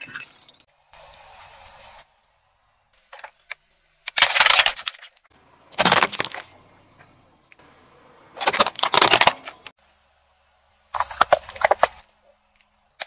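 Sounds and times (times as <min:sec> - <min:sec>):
tyre crushing small objects: 0:04.1 - 0:06.6, 0:08.4 - 0:09.7, 0:11.0 - 0:12.1.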